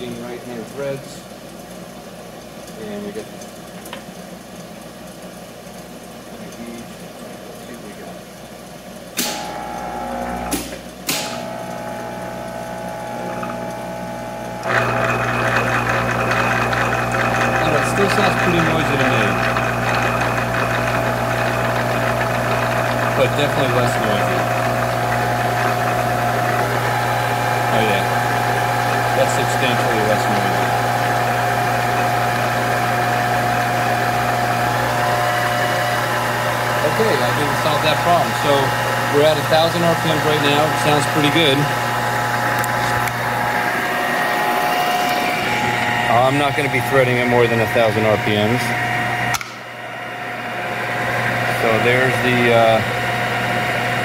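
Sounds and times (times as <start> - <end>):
lathe running hum: 8.2 - 54.0
sharp click: 9.2 - 9.5, 10.5 - 11.4, 49.3 - 49.6.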